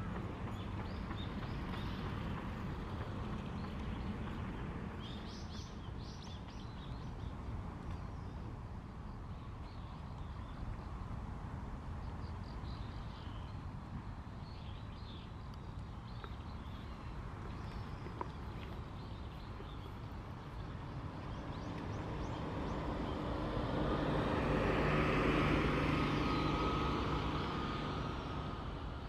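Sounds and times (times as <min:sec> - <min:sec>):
small birds chirping: 0:00.0 - 0:11.0, 0:12.0 - 0:24.9.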